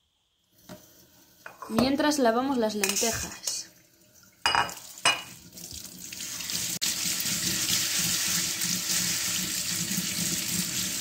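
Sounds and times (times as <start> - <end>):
tap water running into a sink: 3.7 - 11.0.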